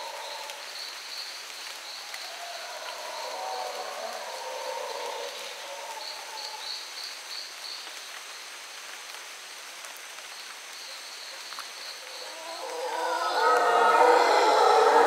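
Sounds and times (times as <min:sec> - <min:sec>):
insect hum: 0:00.0 - 0:15.0
howler monkeys roaring: 0:02.2 - 0:06.3, 0:12.0 - 0:15.0.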